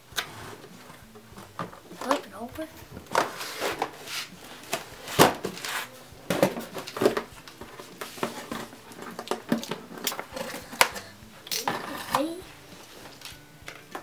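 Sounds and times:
cardboard box scraping and rustling: 3.2 - 6.8.

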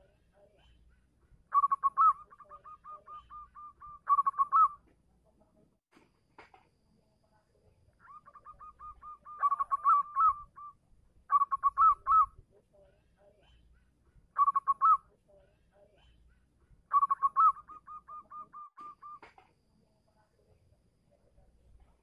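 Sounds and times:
dove cooing: 1.5 - 4.8, 8.1 - 10.7, 11.3 - 12.3, 14.4 - 15.0, 16.9 - 19.3.

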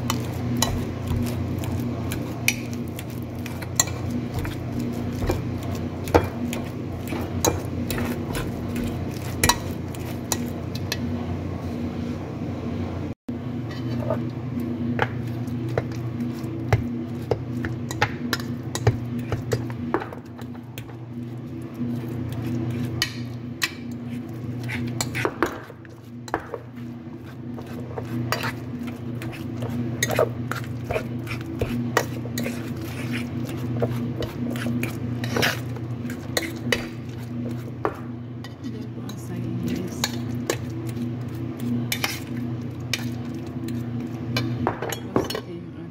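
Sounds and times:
metal spoon scraping a bowl: 21.9 - 25.4, 27.2 - 37.7, 38.4 - 43.8.

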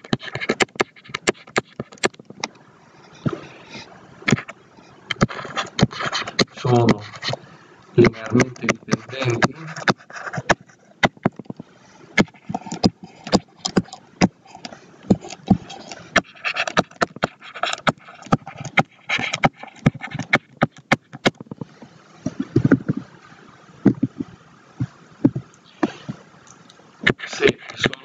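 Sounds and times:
stylus tapping on screen: 8.0 - 11.6, 23.9 - 24.3, 25.2 - 25.9.

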